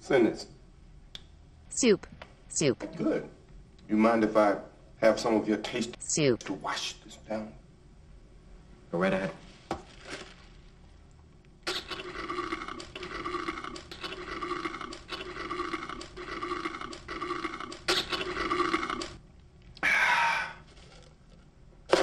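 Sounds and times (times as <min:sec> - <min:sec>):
drink slurped through straw: 0:11.7 - 0:19.2.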